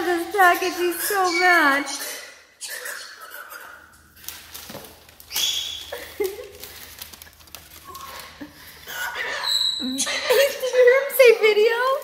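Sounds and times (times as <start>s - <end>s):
cockatoo squawking: 0.8s - 4.0s, 8.8s - 11.0s
scuffles on packing paper: 4.2s - 8.9s.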